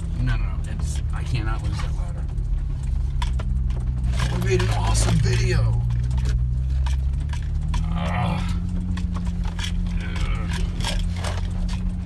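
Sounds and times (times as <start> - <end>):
loose things rattling in cab: 0.0 - 12.0
truck engine running in low gear: 0.0 - 12.0.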